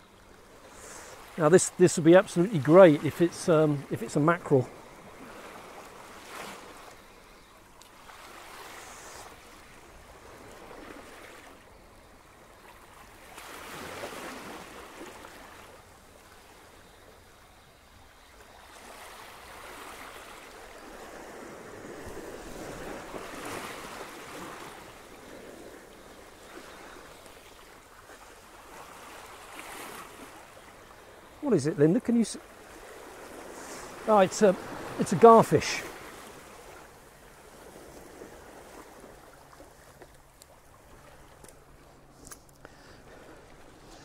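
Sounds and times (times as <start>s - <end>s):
sea waves washing against rocks: 31.4s - 36.9s.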